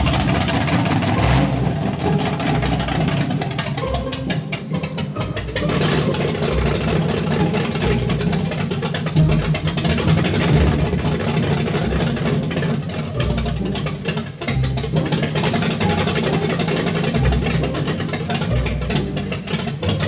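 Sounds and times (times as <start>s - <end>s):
loud pulsing engine idling: 0.0s - 20.0s.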